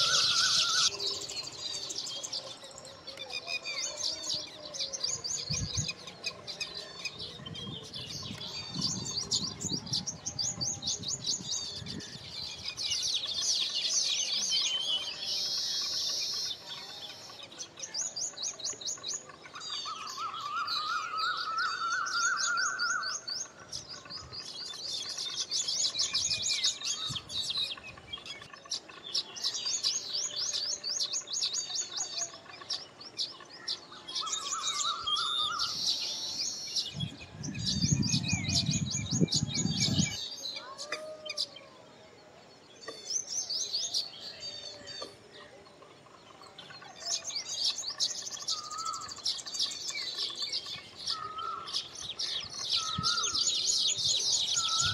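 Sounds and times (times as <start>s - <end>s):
lower bird trill: 0.0s - 3.5s, 46.0s - 54.9s
birds chattering buzzy chirps: 43.0s - 54.9s.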